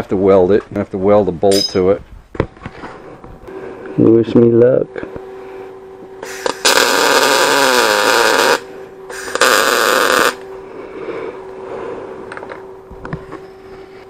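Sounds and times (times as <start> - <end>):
arc welding crackling hiss: 6.2 - 10.5.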